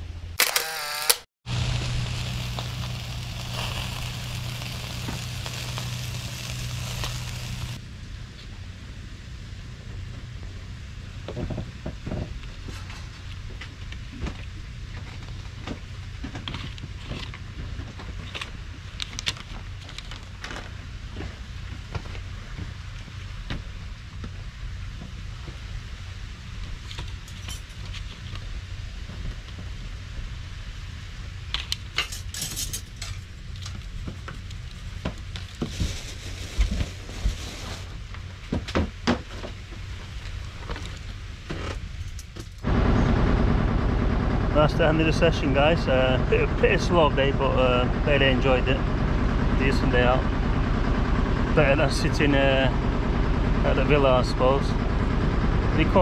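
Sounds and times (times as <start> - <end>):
steady low rumble: 1.5 - 11.8, 39.9 - 56.0.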